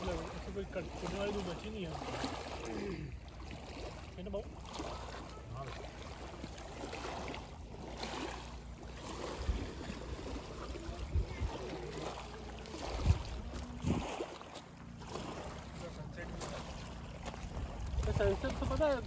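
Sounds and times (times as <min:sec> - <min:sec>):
waves lapping on pebbles: 0:00.0 - 0:19.0
wind rumbling on microphone: 0:09.3 - 0:12.0, 0:12.8 - 0:14.4, 0:17.4 - 0:19.0
faint voices: 0:10.4 - 0:14.4.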